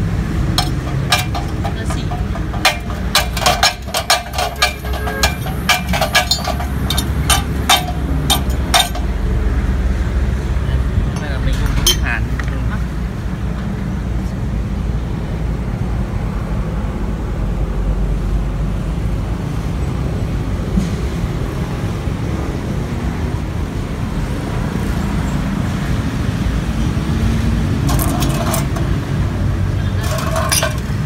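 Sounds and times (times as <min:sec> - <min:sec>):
short clattering: 0:00.5 - 0:09.1, 0:27.8 - 0:29.0, 0:30.0 - 0:31.0.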